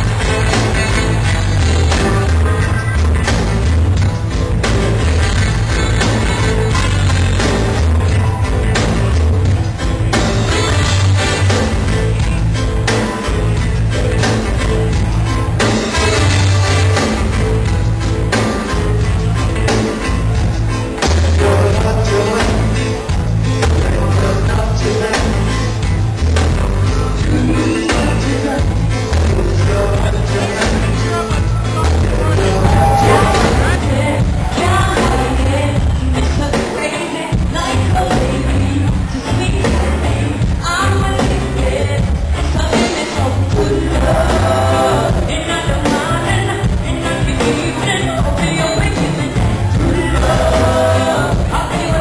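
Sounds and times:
deep bass guitar line: 0.0s - 36.6s, 37.4s - 52.0s
drums playing a steady groove: 0.0s - 52.0s
live reggae band: 0.0s - 52.0s
woman singing: 32.1s - 52.0s
drum hits: 32.4s - 35.3s.

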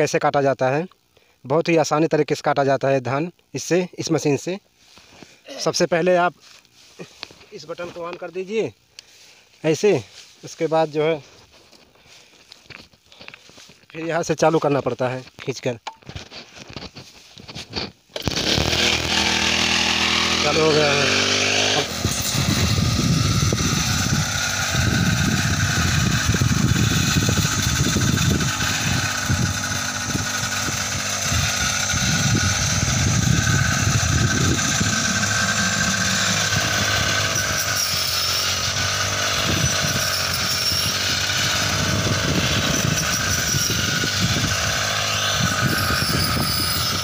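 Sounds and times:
small petrol engine running: 18.2s - 47.0s.

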